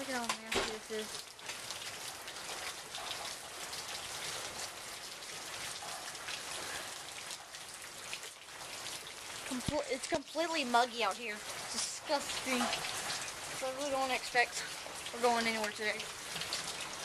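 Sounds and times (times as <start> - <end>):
steady rain falling: 0.0 - 17.0.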